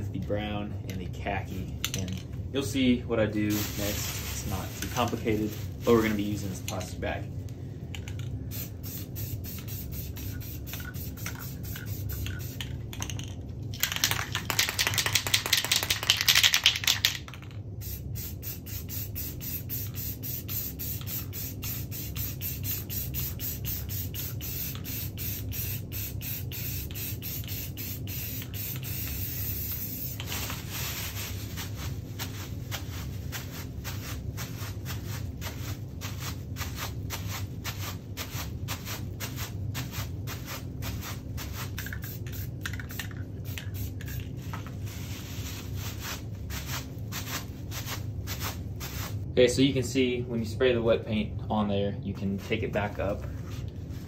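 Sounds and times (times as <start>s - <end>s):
spray paint can hissing: 8.5s - 12.8s, 13.8s - 49.2s.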